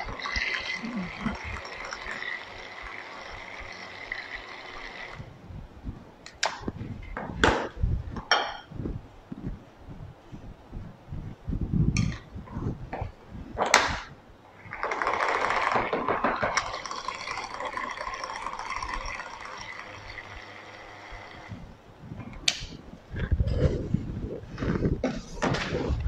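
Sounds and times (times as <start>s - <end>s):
immersion blender motor running: 0.0s - 5.3s, 16.5s - 21.6s.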